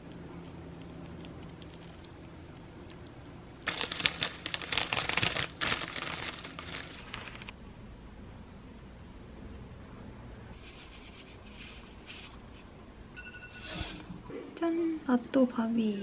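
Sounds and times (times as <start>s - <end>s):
plastic bag crinkling: 3.6s - 7.5s.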